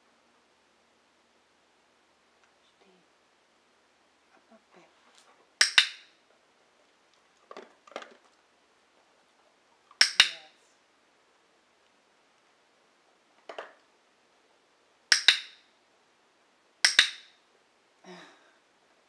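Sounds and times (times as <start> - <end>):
training clicker clicking: 10.0 - 10.4, 15.1 - 15.6, 16.8 - 17.2.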